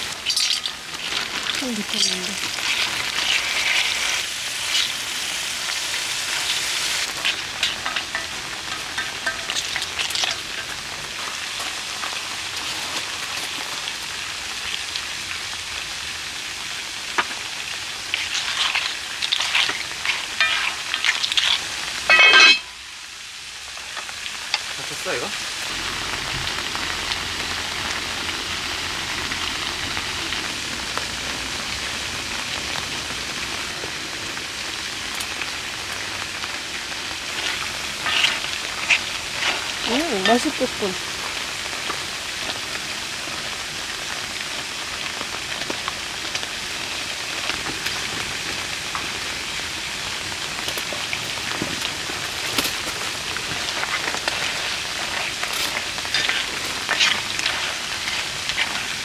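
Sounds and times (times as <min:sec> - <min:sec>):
food sizzling in a pan: 0:00.0 - 0:59.0
utensils scraping a pan: 0:07.0 - 0:10.8, 0:18.1 - 0:22.7, 0:37.3 - 0:40.5, 0:53.7 - 0:59.0.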